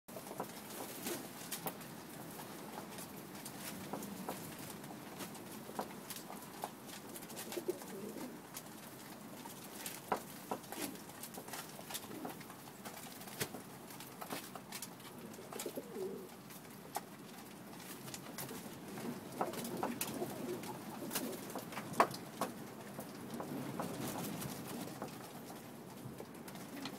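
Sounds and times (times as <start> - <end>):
pigeons pecking metal trays: 0.1 - 26.9
pigeons cooing: 7.1 - 9.3, 10.4 - 11.1, 11.8 - 12.8, 15.1 - 16.4, 18.3 - 22.2, 26.3 - 26.9.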